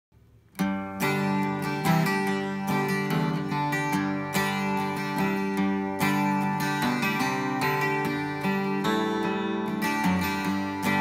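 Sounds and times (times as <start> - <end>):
twelve-string guitar strumming: 0.2 - 11.0.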